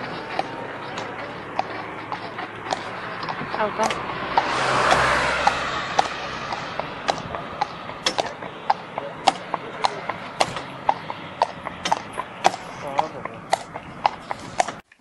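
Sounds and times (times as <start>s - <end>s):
passing vehicle rush: 0.0s - 14.8s
hooves clip-clopping on asphalt: 0.0s - 15.0s.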